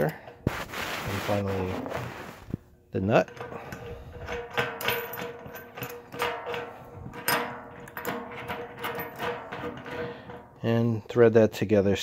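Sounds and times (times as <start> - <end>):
metal nut and washers clinking: 3.0 - 10.8.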